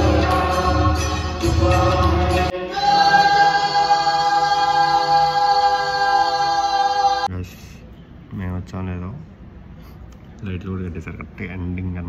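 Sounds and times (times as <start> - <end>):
voices singing a chord: 0.0 - 7.3.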